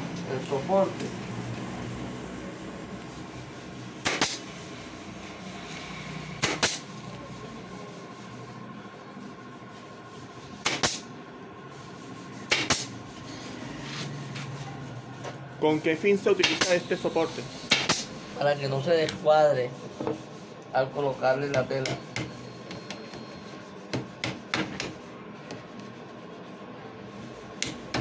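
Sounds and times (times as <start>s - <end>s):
pneumatic nail gun shots: 4.0s - 4.4s, 6.4s - 6.8s, 10.6s - 11.0s, 12.5s - 12.9s, 17.7s - 18.1s.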